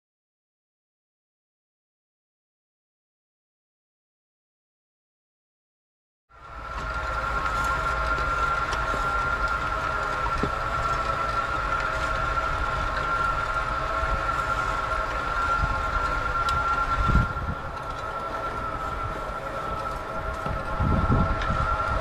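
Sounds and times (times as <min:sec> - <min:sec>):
electric motors whining: 0:06.4 - 0:22.0
low rumble: 0:06.4 - 0:22.0
weeding tools rattling in soil: 0:06.6 - 0:21.8.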